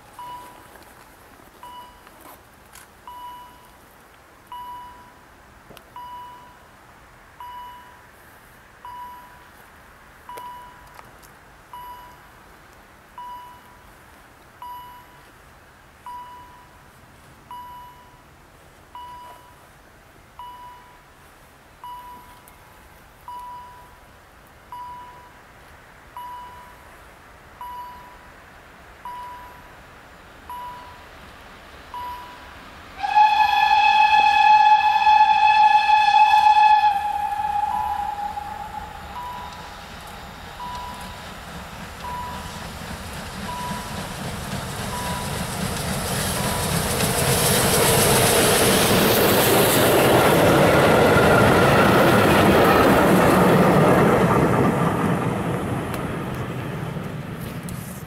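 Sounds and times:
level-crossing bell dinging: 0.2s - 0.7s, 1.6s - 2.1s, 3.1s - 3.7s, 29.0s - 29.8s, 30.5s - 31.1s, 32.0s - 32.5s, 37.7s - 38.2s, 39.1s - 39.6s, 40.6s - 41.2s, 42.0s - 42.5s, 43.5s - 44.0s, 44.9s - 45.4s.

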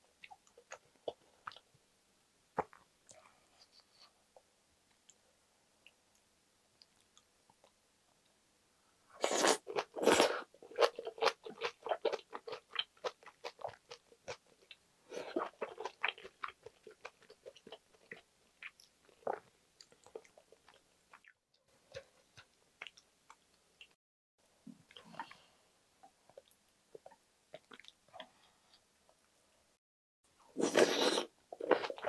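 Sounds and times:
person chewing food: 9.2s - 24.0s, 26.0s - 28.8s, 30.6s - 32.0s.

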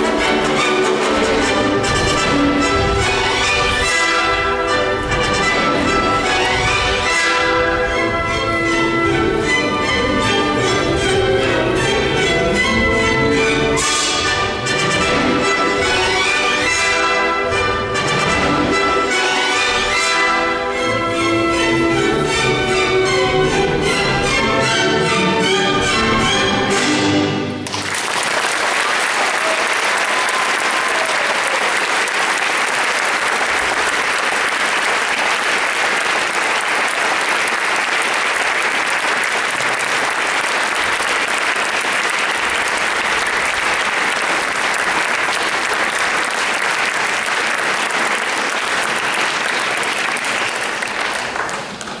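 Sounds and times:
orchestral music: 0.0s - 52.0s
audience applauding: 27.6s - 52.0s.

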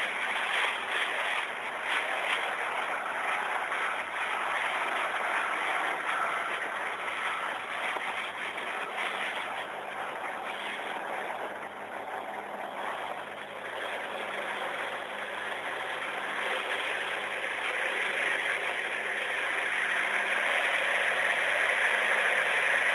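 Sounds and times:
boat wake and spray rushing: 0.0s - 22.9s.

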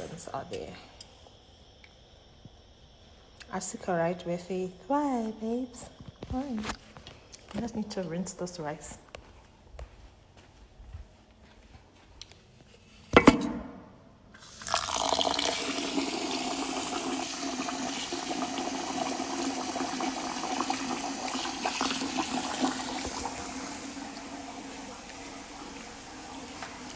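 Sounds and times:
tap running water into rice: 14.4s - 26.9s.

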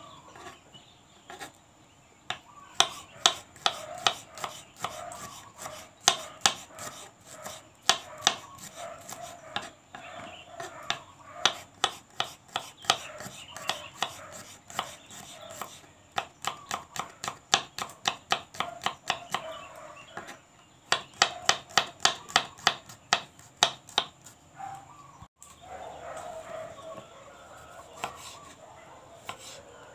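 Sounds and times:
knife chopping vegetables: 2.3s - 19.5s, 20.2s - 24.4s, 27.6s - 28.6s, 29.2s - 29.6s.

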